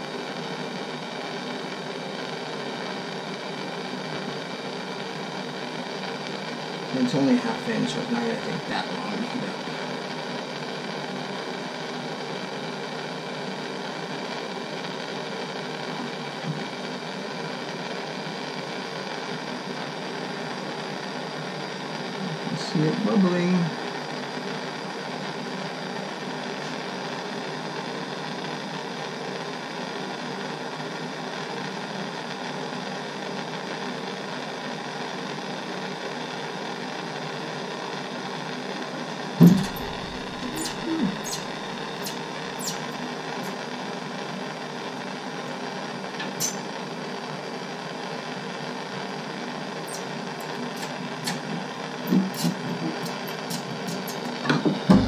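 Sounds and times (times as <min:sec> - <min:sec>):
gas torch flame hissing: 0:00.0 - 0:55.0
knock: 0:54.4 - 0:55.0.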